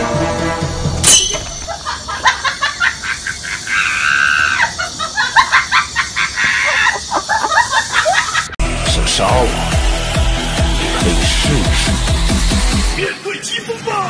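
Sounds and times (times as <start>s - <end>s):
shrill voice screaming: 3.6s - 4.8s.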